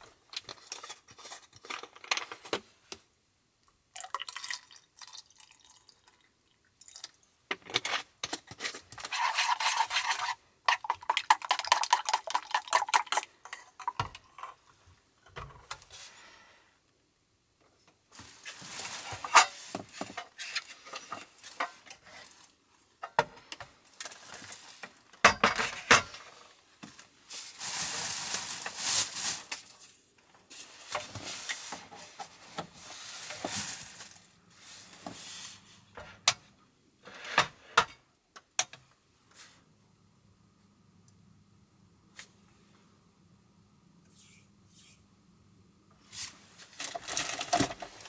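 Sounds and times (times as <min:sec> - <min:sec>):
packaging rustling: 0:27.4 - 0:29.8, 0:32.9 - 0:34.3.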